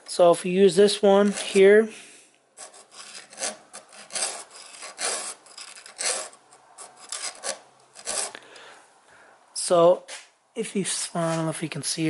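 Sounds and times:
file rasping on saw chain: 2.6s - 8.4s.

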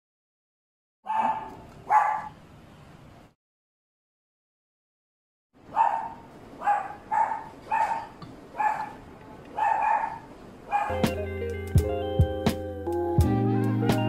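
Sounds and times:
small dog barking: 1.1s - 2.4s, 5.7s - 11.2s
background music: 10.9s - 14.0s.

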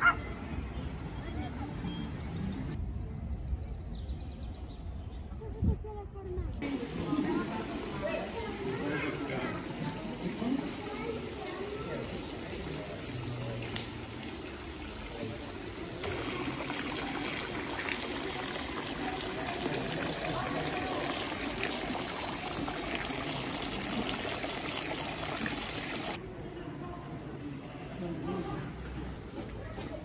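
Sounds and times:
fountain water splashing: 6.6s - 26.2s.

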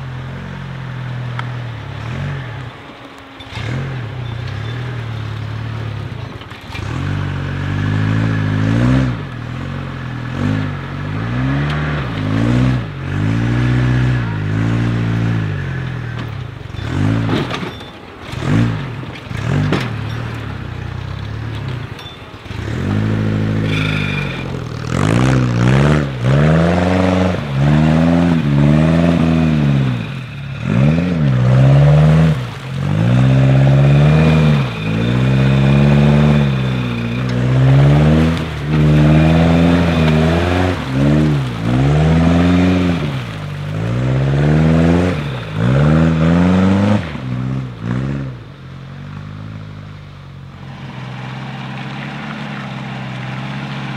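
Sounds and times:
buggy engine revving: 0.0s - 53.9s
knocks and clatter: 15.8s - 23.1s.

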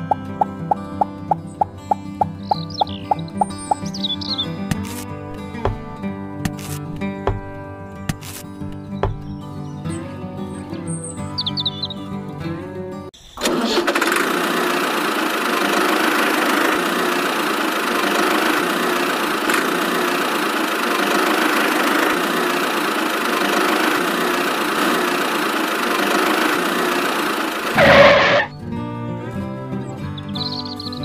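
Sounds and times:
toy tractor engine running: 13.4s - 28.5s.

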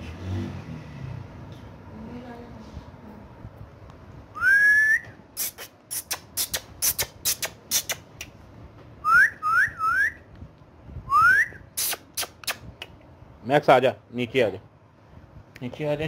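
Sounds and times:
parrot whistling: 9.0s - 10.2s, 11.1s - 12.4s.

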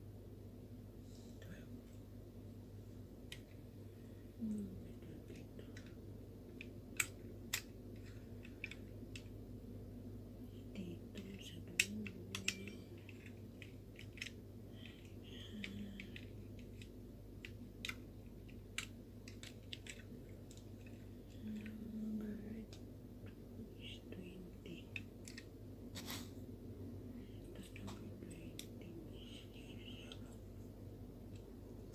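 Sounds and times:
steady low hum: 0.0s - 31.9s
plastic pieces clicking and snapping: 5.2s - 9.4s, 11.2s - 21.8s, 24.8s - 25.5s.

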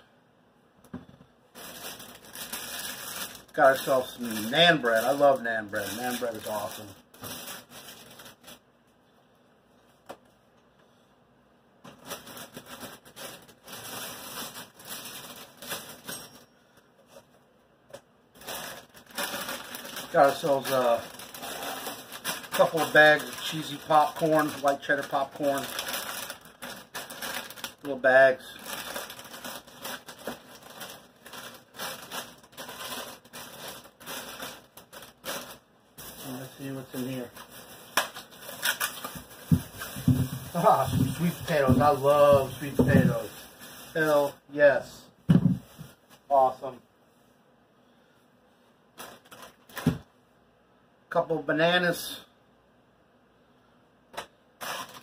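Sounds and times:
bags and packaging rustling: 1.5s - 8.7s, 11.8s - 17.3s, 18.4s - 44.4s, 45.3s - 46.5s, 48.9s - 50.1s, 54.6s - 55.0s.

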